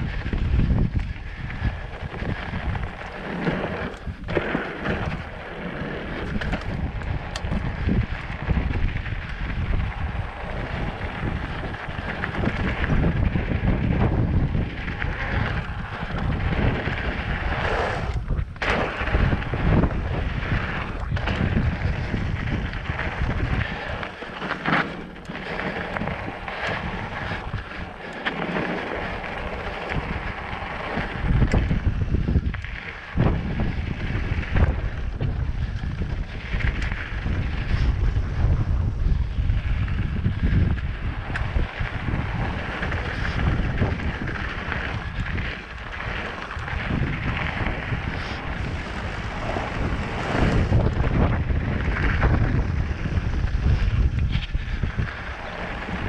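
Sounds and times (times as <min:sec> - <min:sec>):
bike knocks and rattles: 0:00.0 - 0:17.6, 0:18.2 - 0:55.1
bike tyre rumble: 0:00.0 - 0:56.0
wind buffeting microphone: 0:00.0 - 0:56.0.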